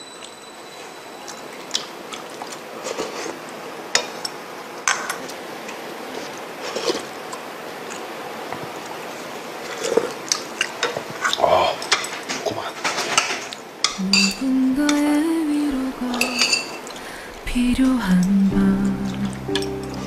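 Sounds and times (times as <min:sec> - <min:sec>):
metal spoon clinking on bowl: 0:13.8 - 0:14.4, 0:16.1 - 0:16.9.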